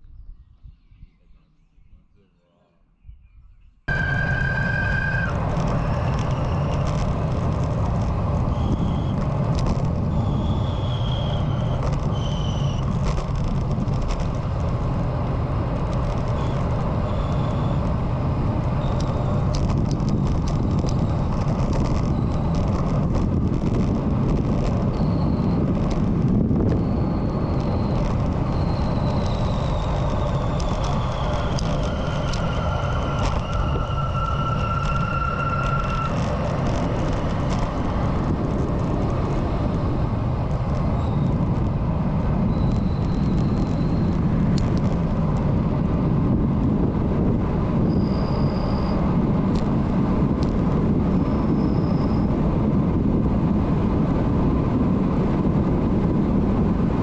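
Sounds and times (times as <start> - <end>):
faint high whistling tones: 0.1 - 7.1, 8.4 - 9.3, 10.0 - 12.9, 16.3 - 18.0, 18.8 - 19.4, 20.9 - 22.8, 24.8 - 25.8, 26.6 - 37.2, 40.8 - 41.8, 42.4 - 44.2, 47.8 - 49.0, 51.1 - 52.4
wind rushing over microphone: 3.0 - 57.0
road noise: 3.9 - 57.0.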